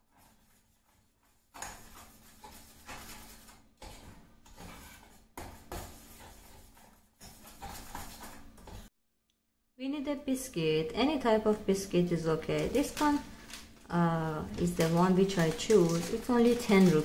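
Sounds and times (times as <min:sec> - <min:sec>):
spoon stirring mixture in pan: 0:00.1 - 0:08.9.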